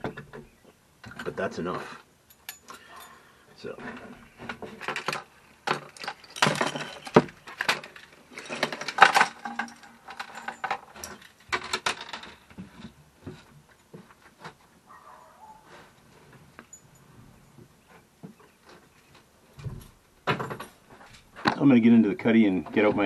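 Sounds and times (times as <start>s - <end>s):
fishing hooks clinking: 2.3s - 3.2s, 5.0s - 11.4s
keys jangling: 2.3s - 3.2s, 5.9s - 11.5s.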